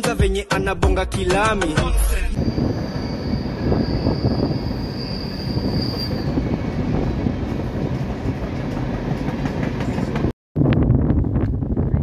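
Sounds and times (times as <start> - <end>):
train rumbling: 2.3 - 10.3
high wheel squeal: 2.4 - 7.3.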